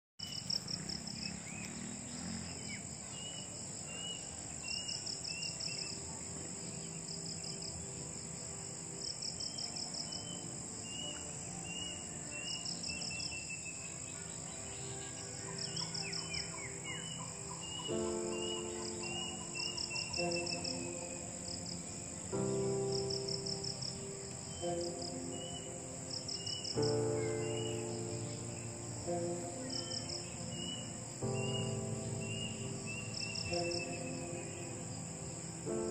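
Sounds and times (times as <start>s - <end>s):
bird chirps: 0.2s - 8.0s, 9.3s - 35.9s
high insect drone: 0.2s - 35.9s
pulsing insect trills: 0.2s - 35.9s.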